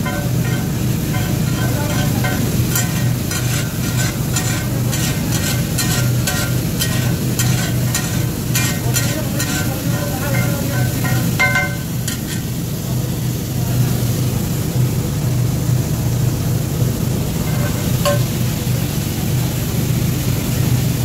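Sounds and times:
metal spatula scraping griddle: 0:00.0 - 0:12.6, 0:17.4 - 0:18.3
chillies sizzling in oil: 0:00.0 - 0:21.0.

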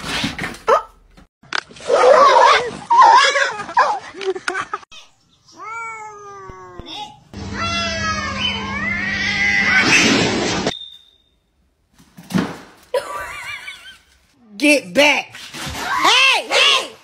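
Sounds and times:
cat yowling: 0:07.6 - 0:09.9.

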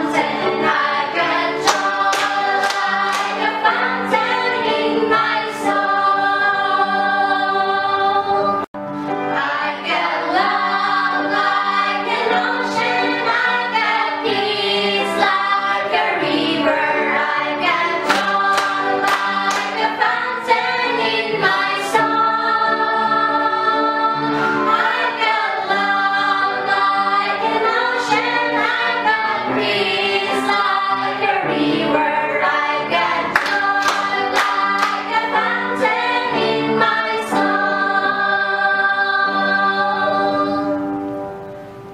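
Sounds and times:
group singing in chorus: 0:00.0 - 0:40.9
hand claps: 0:01.6 - 0:03.5, 0:18.1 - 0:19.9, 0:33.3 - 0:35.2.

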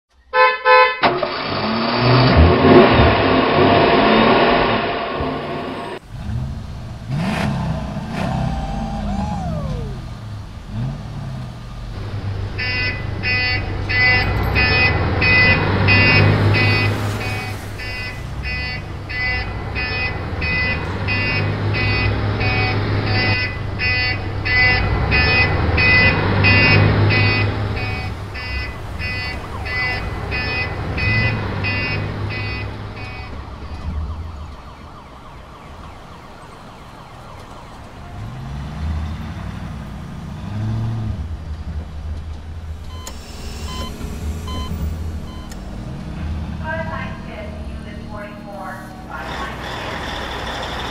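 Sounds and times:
low engine drone: 0:01.0 - 0:36.0, 0:39.8 - 0:50.9
reversing alarm beeping: 0:12.0 - 0:37.8, 0:42.9 - 0:45.8, 0:46.6 - 0:50.9.

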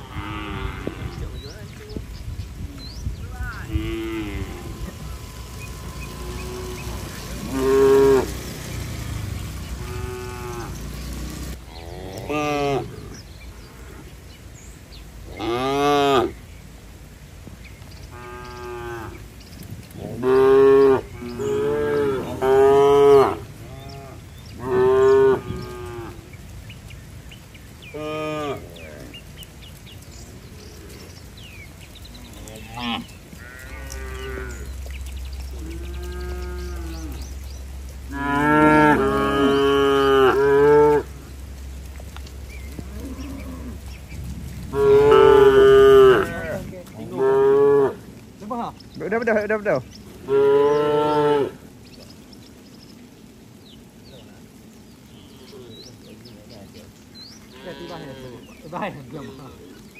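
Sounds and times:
cattle mooing: 0:00.0 - 0:01.3, 0:03.6 - 0:14.1, 0:20.0 - 0:26.3, 0:27.9 - 0:29.2, 0:32.1 - 0:34.9, 0:35.5 - 0:37.4, 0:38.1 - 0:41.2, 0:42.7 - 0:44.0, 0:44.6 - 0:48.1, 0:50.2 - 0:51.6, 0:57.5 - 0:59.7.

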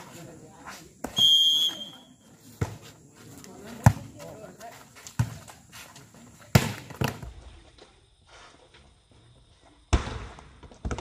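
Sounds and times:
volleyball slaps: 0:06.5 - 0:07.3.

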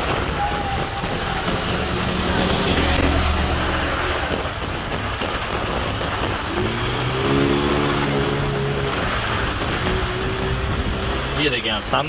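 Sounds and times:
heavy rain on wet road: 0:00.0 - 0:12.0
vehicle engine: 0:00.9 - 0:12.0.

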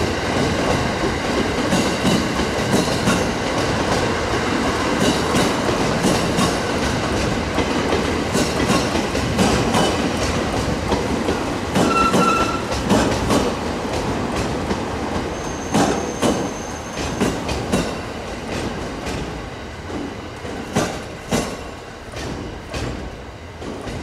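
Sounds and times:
train wheels clattering: 0:00.0 - 0:24.0
high wheel squeal: 0:11.8 - 0:12.7, 0:15.4 - 0:17.0.

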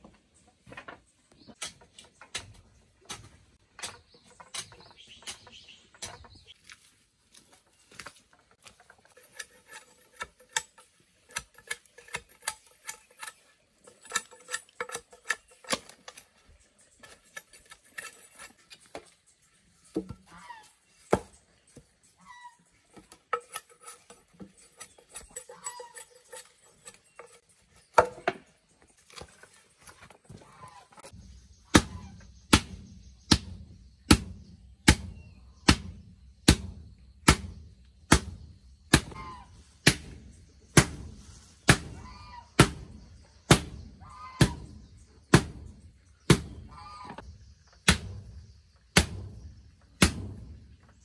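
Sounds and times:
hand tool striking: 0:08.0 - 0:19.1, 0:23.0 - 0:28.4.

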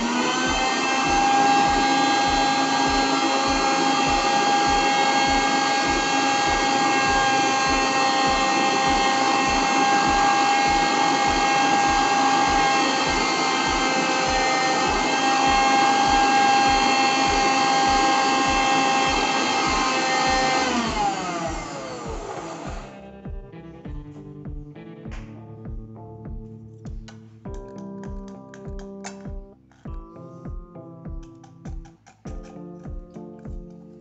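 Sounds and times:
mixer grinder motor whine: 0:00.0 - 0:23.0.

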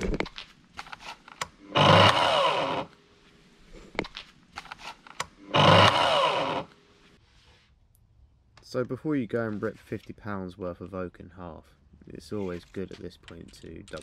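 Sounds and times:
track saw running: 0:01.6 - 0:03.0, 0:05.4 - 0:06.8
clicks and knocks of handling: 0:12.5 - 0:14.0.

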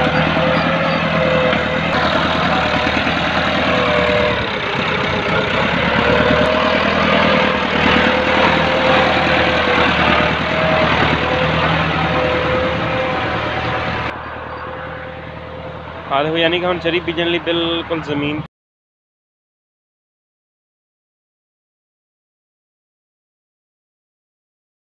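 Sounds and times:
tractor diesel engine running: 0:00.0 - 0:18.5
wavering high whine: 0:06.2 - 0:18.2.

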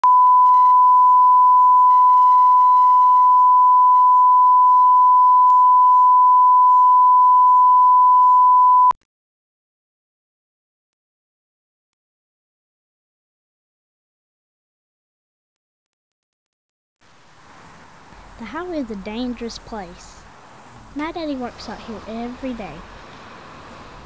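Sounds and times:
steady test tone: 0:00.0 - 0:09.0.

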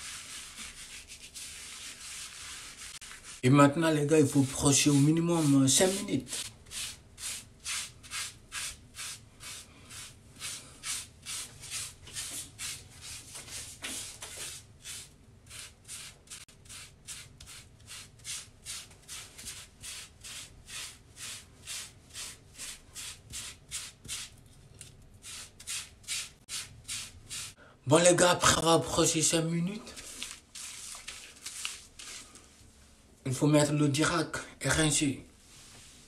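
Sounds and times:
hairbrush scrubbing wet hair: 0:00.0 - 0:03.4, 0:04.2 - 0:24.4, 0:30.0 - 0:32.2.

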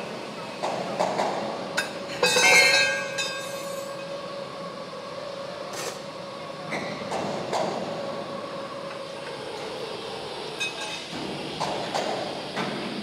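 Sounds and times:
ringing metallic clang: 0:02.2 - 0:03.6.

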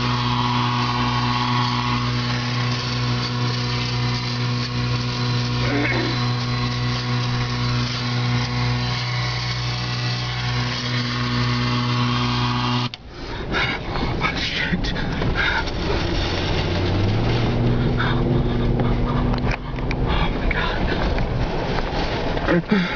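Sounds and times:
steady droning hum: 0:00.0 - 0:22.9
gusting wind with spatters and knocks: 0:13.0 - 0:22.9
wind and rain on a vehicle: 0:13.4 - 0:22.9.

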